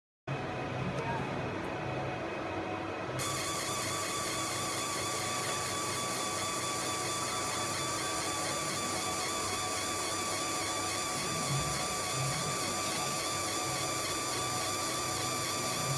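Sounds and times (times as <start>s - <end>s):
laser marking machine hissing: 3.2s - 15.9s.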